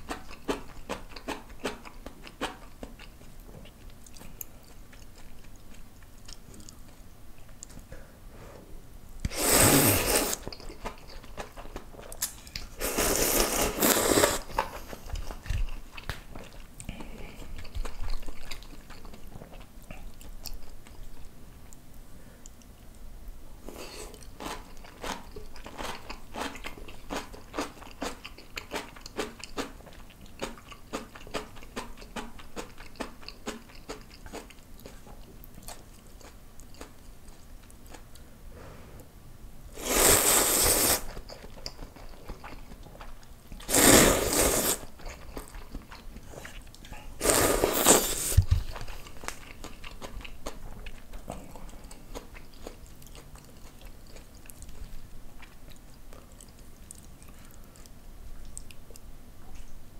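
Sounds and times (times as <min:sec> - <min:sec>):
loud noodle slurps: 0:09.3 - 0:10.4, 0:12.8 - 0:14.7, 0:39.8 - 0:41.2, 0:43.6 - 0:44.9, 0:47.2 - 0:48.5
crisp chewing crunches: 0:23.7 - 0:38.2, 0:39.8 - 0:59.7.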